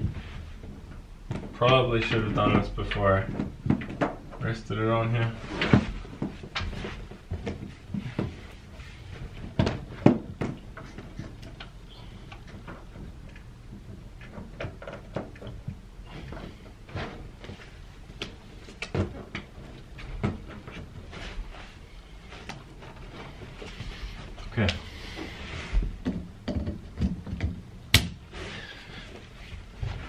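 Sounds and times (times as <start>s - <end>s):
knocks and clicks of handling a cable: 0.0s - 2.6s, 3.2s - 4.5s, 5.6s - 8.5s, 9.2s - 21.0s, 25.8s - 28.2s.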